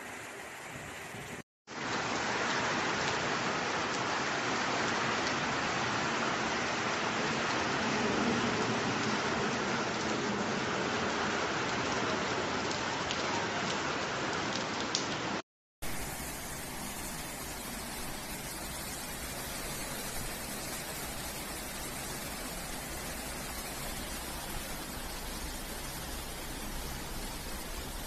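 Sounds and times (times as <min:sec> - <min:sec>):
heavy rain hissing: 0:15.8 - 0:28.0.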